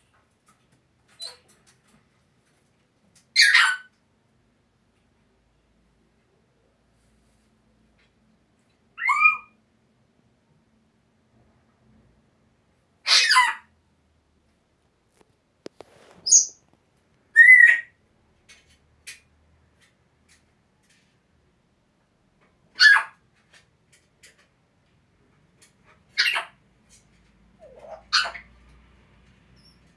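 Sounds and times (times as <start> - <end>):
parrots squawking and whistling: 3.4 - 3.9, 9.0 - 9.6, 13.1 - 13.7, 17.4 - 18.0, 22.8 - 23.2, 26.1 - 26.6, 27.6 - 28.6.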